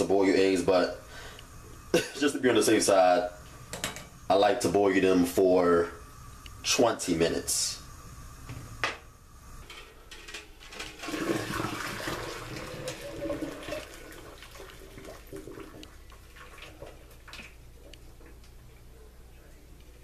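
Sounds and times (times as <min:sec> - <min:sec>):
hot water pouring into sink: 0:09.6 - 0:18.4.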